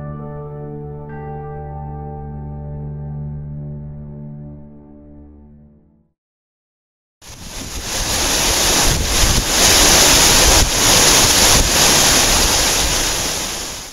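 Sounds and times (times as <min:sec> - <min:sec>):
waterfall rushing: 0:07.3 - 0:13.9.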